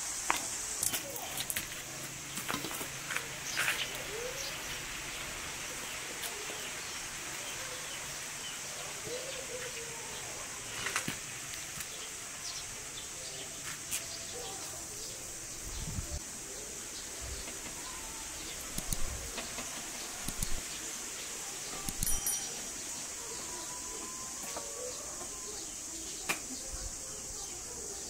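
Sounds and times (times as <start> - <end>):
steady high hiss: 0.0 - 28.0.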